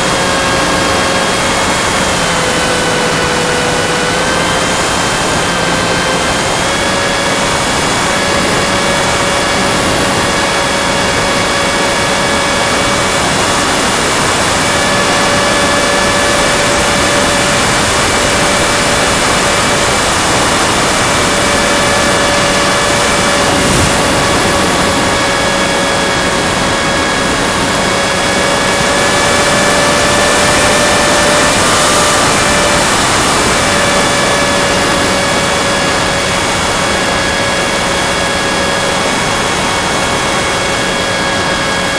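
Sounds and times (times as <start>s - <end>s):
model plane electric motor whine: 0.0s - 41.9s
air rushing past: 20.5s - 28.4s.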